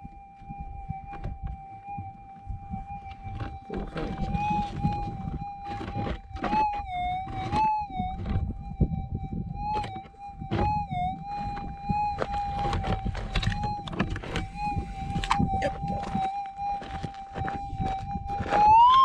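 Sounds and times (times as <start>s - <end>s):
metal detector hum changing pitch: 0.0s - 19.0s
coil and feet scuffing stony ground: 9.8s - 19.0s.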